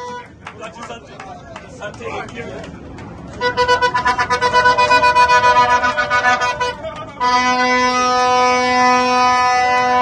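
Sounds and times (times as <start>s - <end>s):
plastic horn blasts: 3.4s - 10.0s.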